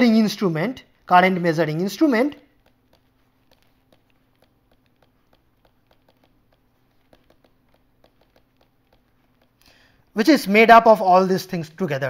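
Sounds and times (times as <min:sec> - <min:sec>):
stylus tapping on tablet screen: 0:01.7 - 0:10.2.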